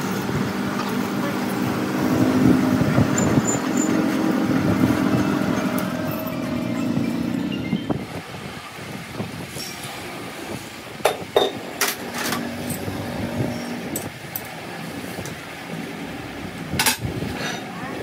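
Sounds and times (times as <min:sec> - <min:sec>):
workshop background noise: 0:00.0 - 0:18.0
metal tools clinking: 0:03.1 - 0:04.2, 0:05.5 - 0:07.7, 0:11.4 - 0:14.6.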